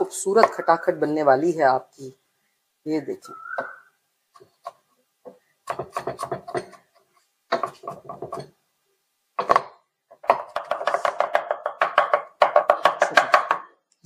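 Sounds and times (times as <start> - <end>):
knife chopping on wooden board: 4.4 - 6.8, 7.5 - 8.5, 9.4 - 13.7.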